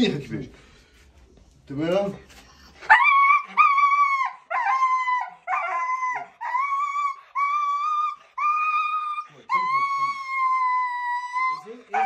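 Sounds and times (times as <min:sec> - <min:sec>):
dog howling: 0:02.9 - 0:12.0.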